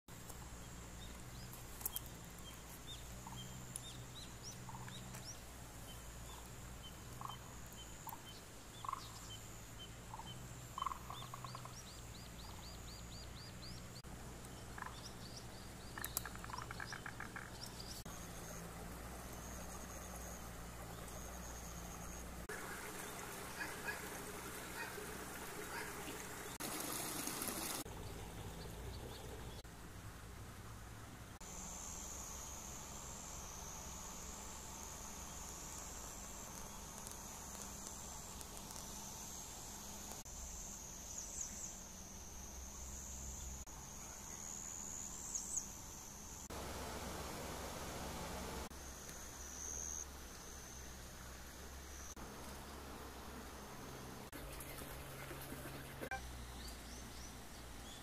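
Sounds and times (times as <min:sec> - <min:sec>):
small birds chirping: 0:00.1 - 0:29.7
rushing water: 0:22.4 - 0:29.4
high insect drone: 0:31.4 - 0:54.0.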